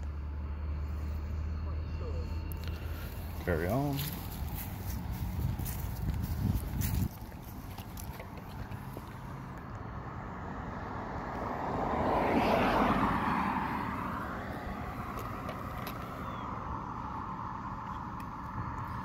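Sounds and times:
car driving past: 8.8s - 19.0s.

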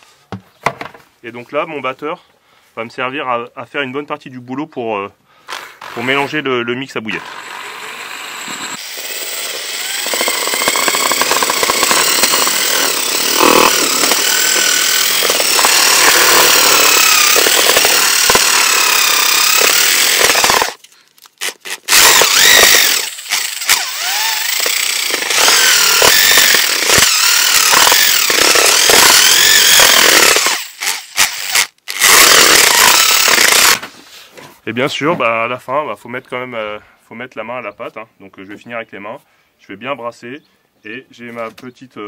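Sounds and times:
electric drill motor whine: 7.2s - 20.8s, 21.9s - 33.8s.

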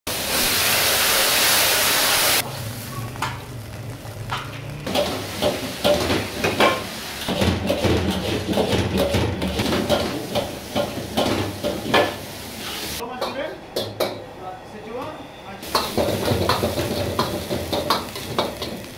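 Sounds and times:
loud rushing sizzle of wok flare: 0.1s - 13.0s, 15.6s - 18.9s
steady sizzling: 0.1s - 13.2s, 15.6s - 18.9s
metal utensils scraping wok: 2.1s - 14.0s, 15.6s - 18.9s.

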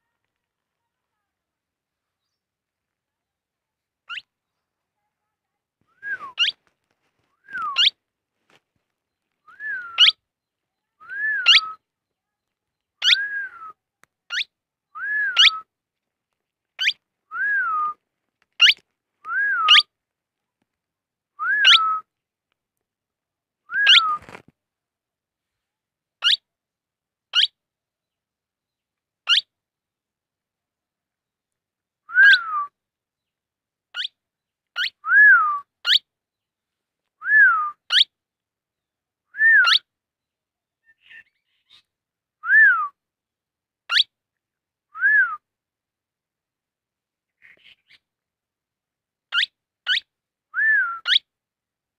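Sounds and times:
parakeet calling: 6.4s - 6.6s, 7.7s - 8.0s, 10.0s - 10.2s, 11.4s - 11.7s, 13.0s - 13.2s, 27.3s - 27.5s, 29.3s - 29.5s, 34.8s - 35.0s, 35.8s - 36.0s, 37.9s - 38.1s, 39.6s - 39.8s, 43.9s - 44.1s, 49.3s - 50.0s, 51.0s - 51.2s.

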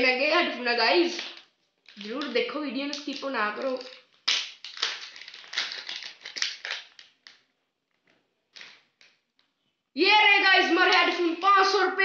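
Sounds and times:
plastic packaging crinkling: 1.2s - 9.3s.

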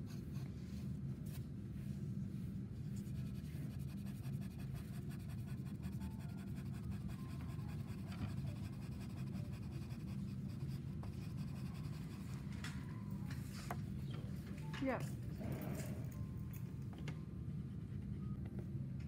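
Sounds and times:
steady low hum: 0.0s - 19.0s
pencil scratching on paper: 3.0s - 12.6s.

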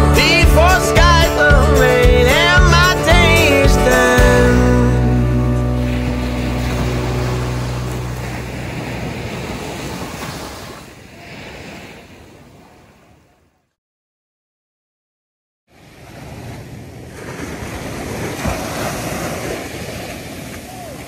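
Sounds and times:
song's last chord: 0.0s - 9.3s
waves rushing: 1.3s - 13.3s, 15.7s - 21.0s
wind: 4.8s - 13.8s, 15.7s - 21.0s.

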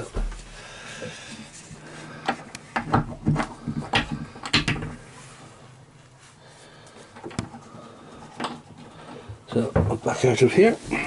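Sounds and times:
wood and metal knocks and clicks: 2.3s - 5.0s.

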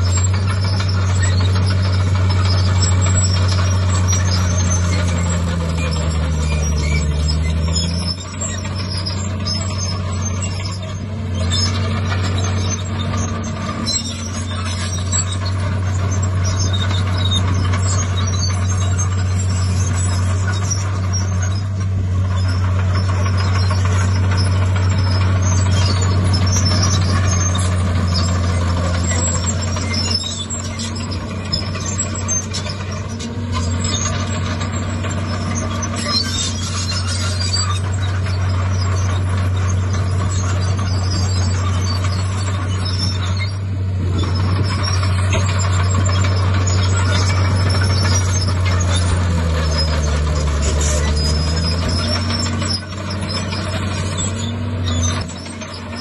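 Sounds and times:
heavy diesel machinery engine: 0.0s - 56.0s.

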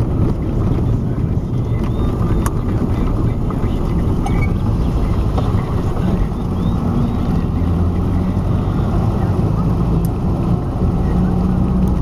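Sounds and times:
car driving rumble: 0.0s - 12.0s
low droning hum: 0.0s - 12.0s.

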